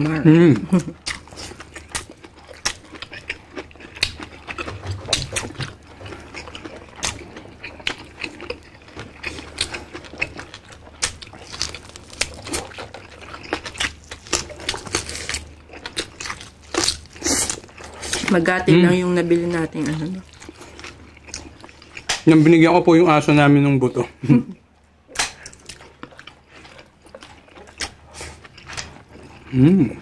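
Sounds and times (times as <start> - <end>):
wet chewing and slurping: 0.9 - 22.5, 25.1 - 30.0.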